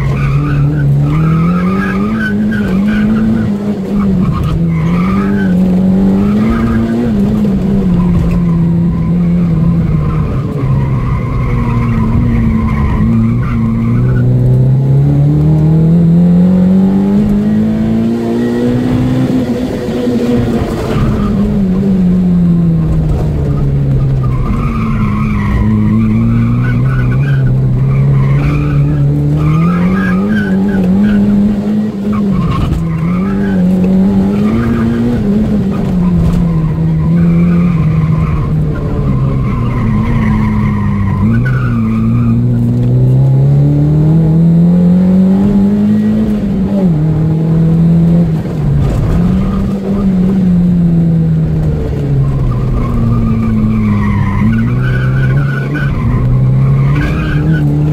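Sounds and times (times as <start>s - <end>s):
car engine revving: 0.0s - 57.9s
tyres squealing: 52.4s - 57.9s.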